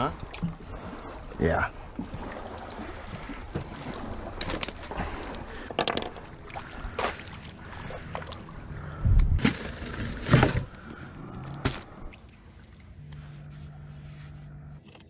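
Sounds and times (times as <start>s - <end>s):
knocks and thumps in boat: 1.9s - 5.0s, 5.6s - 8.4s, 9.1s - 12.1s.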